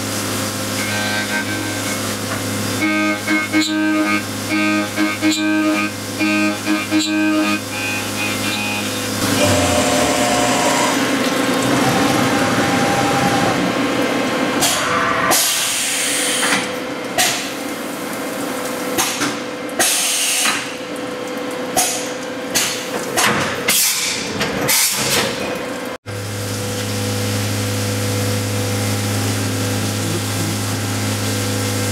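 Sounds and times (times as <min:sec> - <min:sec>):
milling machine spindle tone: 0:02.8 - 0:13.6.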